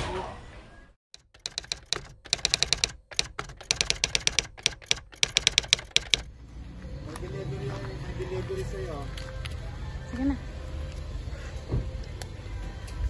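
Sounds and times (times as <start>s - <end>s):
keyboard typing clicks: 1.2s - 6.3s.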